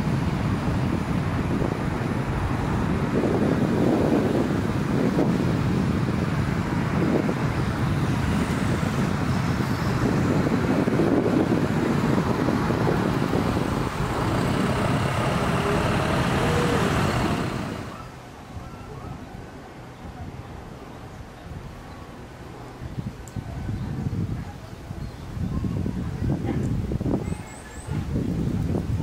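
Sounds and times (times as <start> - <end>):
road traffic rumble: 0.0 - 18.5.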